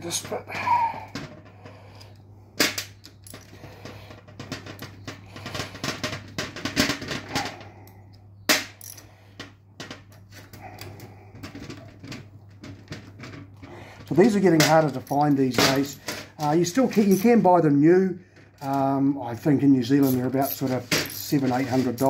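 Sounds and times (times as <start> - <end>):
metal gearbox clicks and clatter: 10.1 - 22.0.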